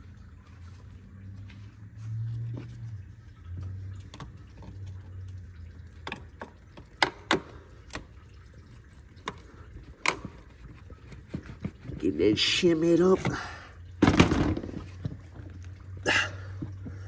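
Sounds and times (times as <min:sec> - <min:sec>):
sharp clicks and knocks: 0:06.0 - 0:08.2, 0:09.2 - 0:11.8.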